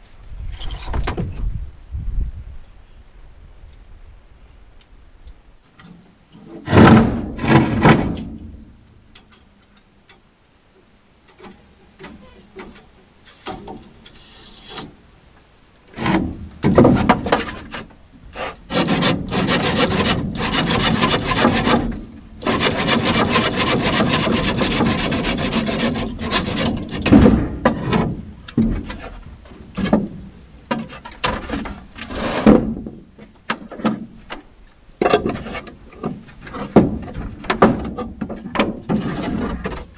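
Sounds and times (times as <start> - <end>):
wood knocking and scraping: 5.8 - 8.7, 15.8 - 39.9
hand saw cutting wood: 16.9 - 28.1, 32.0 - 32.7.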